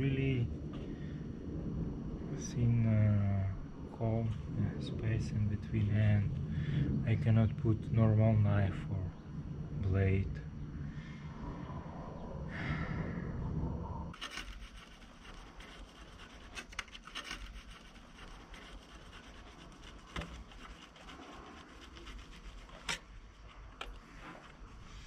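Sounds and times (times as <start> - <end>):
low rumble: 0.0 - 16.6
blade scraping sealant: 14.2 - 25.0.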